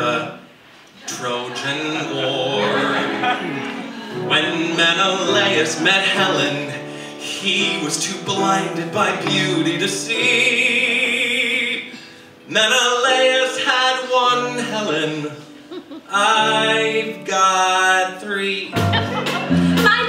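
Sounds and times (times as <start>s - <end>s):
person singing musical theatre song: 0.0s - 20.0s
live band accompaniment: 2.1s - 6.6s, 18.7s - 20.0s.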